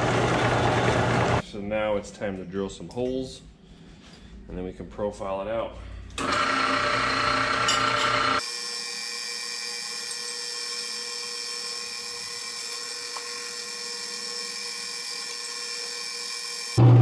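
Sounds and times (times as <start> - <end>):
drill press motor whining: 0.0 - 1.4, 6.2 - 17.0.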